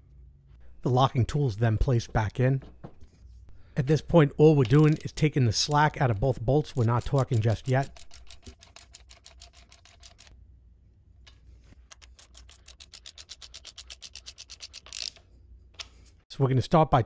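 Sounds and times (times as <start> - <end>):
socket ratchet clicking: 6.7 - 10.3, 11.9 - 15.2.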